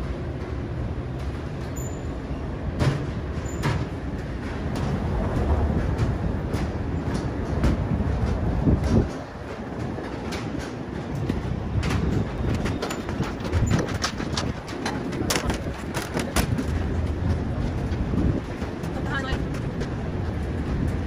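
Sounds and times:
city traffic rumble: 0.0s - 21.0s
footsteps on stairs: 2.6s - 21.0s.

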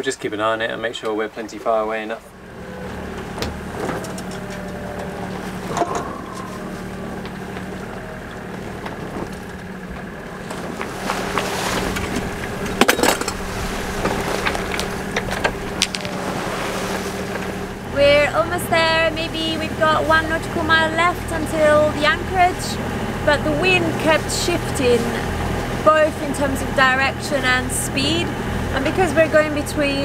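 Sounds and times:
boat engine running: 0.0s - 30.0s
water noise: 0.0s - 30.0s
wind: 0.0s - 30.0s
knocks and rattles: 2.9s - 16.2s.

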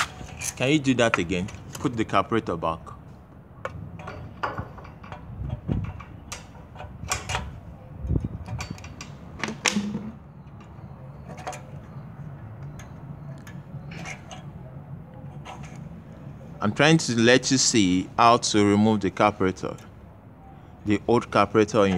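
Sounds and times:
small metallic clicks and knocks: 3.6s - 14.6s.

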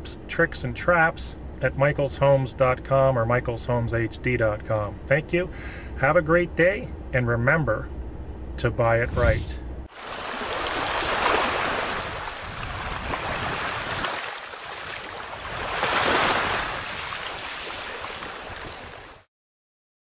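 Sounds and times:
waves washing in: 9.1s - 19.3s.

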